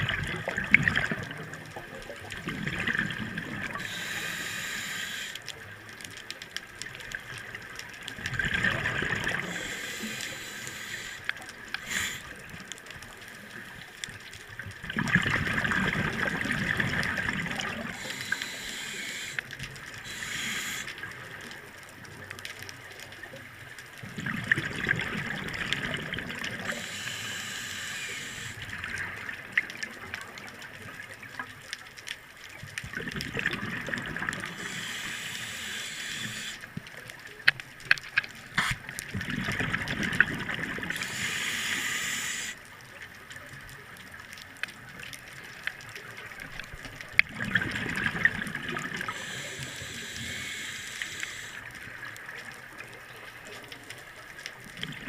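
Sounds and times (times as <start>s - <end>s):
exhaled bubbles gurgling underwater: 0.0s - 55.0s
hissing regulator inhalations: 3.6s - 5.5s, 9.2s - 12.5s, 17.4s - 21.2s, 26.5s - 28.7s, 34.3s - 36.7s, 38.6s - 38.8s, 40.9s - 42.6s, 48.9s - 51.7s.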